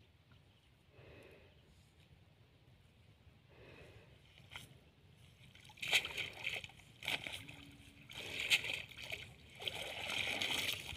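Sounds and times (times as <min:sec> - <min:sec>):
water splashing from fishing net: 0:05.5 - 0:10.9.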